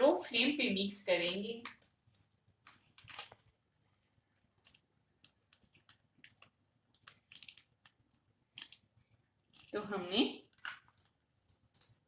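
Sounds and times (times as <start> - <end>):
syrup simmering with little pops: 1.2 - 12.0.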